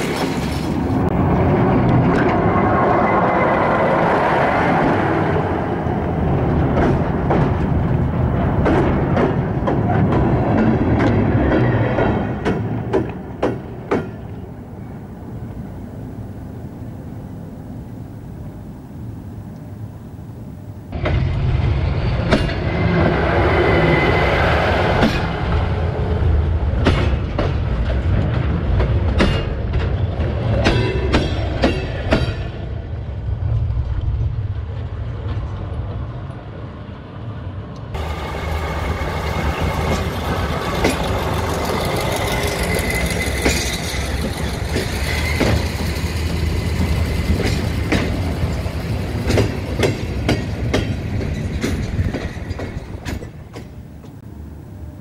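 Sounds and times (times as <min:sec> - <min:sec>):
train wheels clacking on rail joints: 0:06.1 - 0:14.5, 0:26.7 - 0:32.6, 0:38.0 - 0:54.2
diesel engine rumble: 0:33.1 - 0:55.0.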